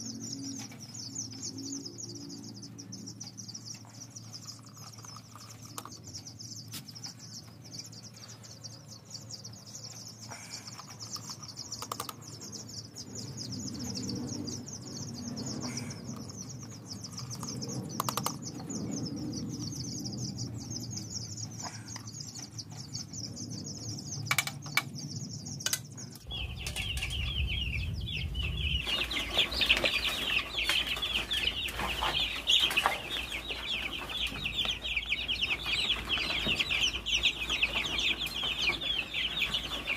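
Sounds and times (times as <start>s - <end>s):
chicks peeping: 0.0s - 39.9s
high-pitched chirping chorus: 0.0s - 39.9s
sharp clicks: 10.7s - 12.4s, 16.2s - 18.7s, 25.6s - 27.2s
low rumble: 12.3s - 39.9s.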